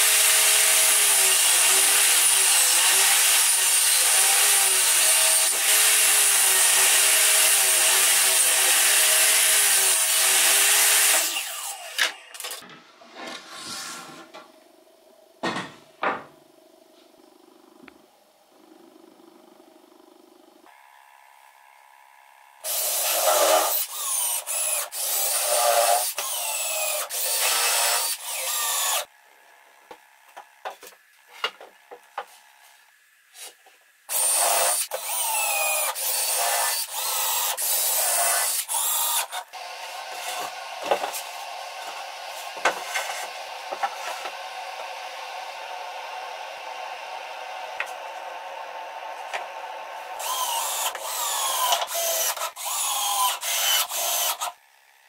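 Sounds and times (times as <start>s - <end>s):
cordless drill driving screws: 22.7s - 29.0s, 34.1s - 41.3s, 50.2s - 54.6s.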